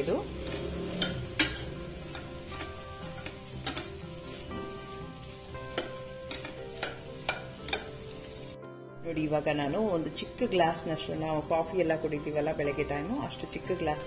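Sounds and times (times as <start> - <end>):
low sizzle of frying: 0.0 - 14.0
spatula clinking against a pan: 1.0 - 4.0, 5.7 - 8.1.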